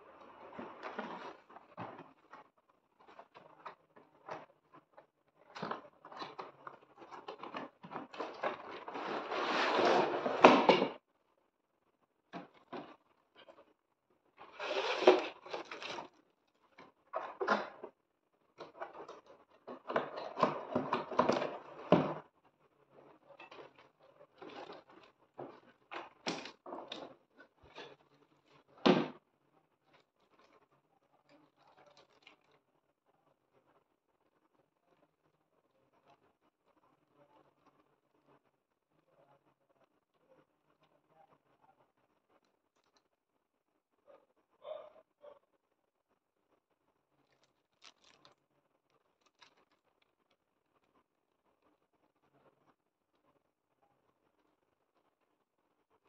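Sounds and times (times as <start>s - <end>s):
cardboard and plastic scraping: 0.1s - 11.0s, 14.4s - 16.2s, 18.6s - 22.2s, 23.4s - 28.0s.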